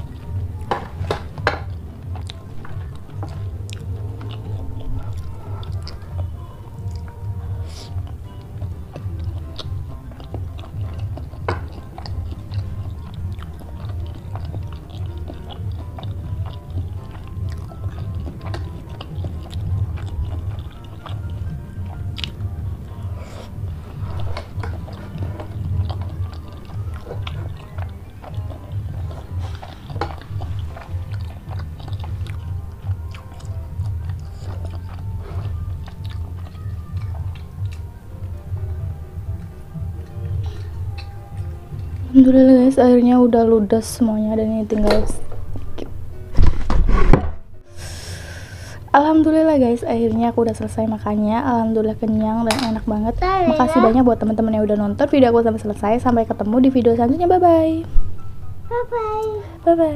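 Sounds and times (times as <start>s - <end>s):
chewing food: 0.0s - 46.0s.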